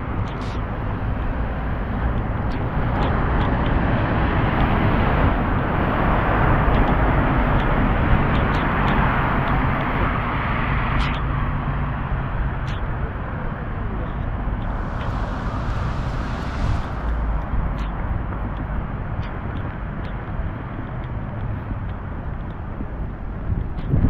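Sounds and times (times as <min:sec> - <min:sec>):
engine rumble: 0:00.0 - 0:24.0
light ticks: 0:14.0 - 0:24.0
tyres hissing on wet road: 0:14.6 - 0:18.2.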